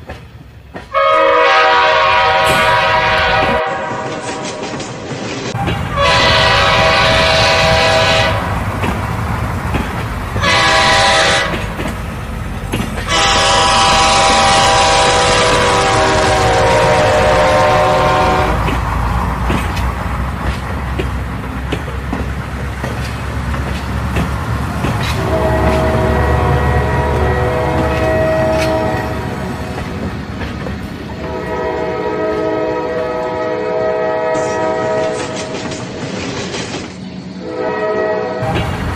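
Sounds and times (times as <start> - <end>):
train clattering on rails: 0.0 - 38.9
train horn blasts: 0.9 - 4.7, 5.6 - 8.6, 10.4 - 11.8, 13.0 - 18.8, 25.0 - 29.8, 31.2 - 35.7, 37.4 - 38.7.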